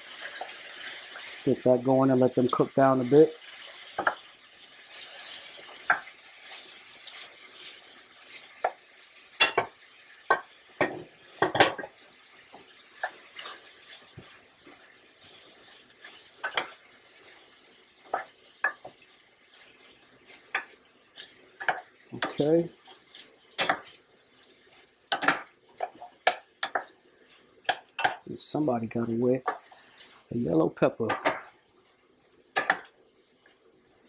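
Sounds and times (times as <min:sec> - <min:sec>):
vegetables sizzling in oil: 0:00.0 - 0:34.0.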